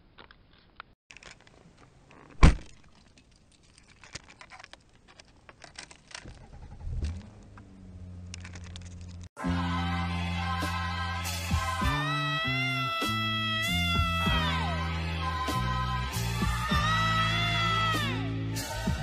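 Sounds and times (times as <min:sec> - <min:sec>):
car door thud: 0:02.4 - 0:02.7
engine cranking and idling: 0:05.7 - 0:09.3.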